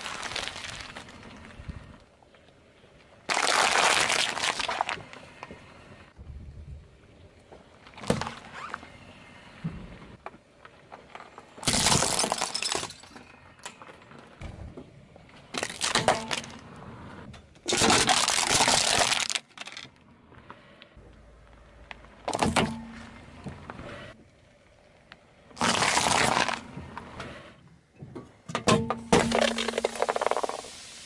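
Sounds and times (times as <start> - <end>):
tyre crushing objects: 25.6 - 26.8.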